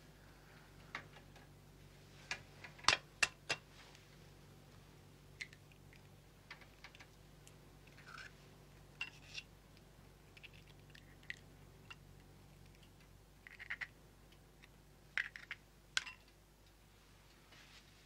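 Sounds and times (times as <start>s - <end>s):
eggshell cracking and clicking: 12.6s - 16.1s.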